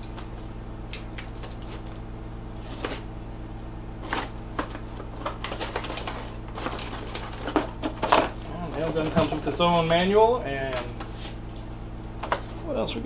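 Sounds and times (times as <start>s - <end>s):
steady low hum: 0.0s - 13.0s
cardboard box rustling and scraping: 4.0s - 10.1s, 10.7s - 12.6s.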